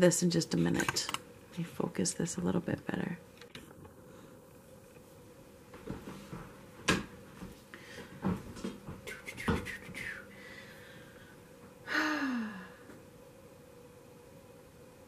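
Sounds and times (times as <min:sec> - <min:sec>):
woman humming: 0:09.1 - 0:10.3, 0:11.8 - 0:12.9.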